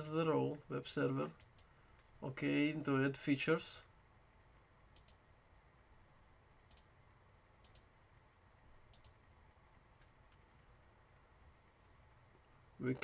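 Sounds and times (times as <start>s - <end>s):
computer mouse clicks: 1.4s - 2.2s, 4.9s - 5.2s, 6.7s - 6.9s, 7.6s - 7.9s, 8.9s - 9.2s.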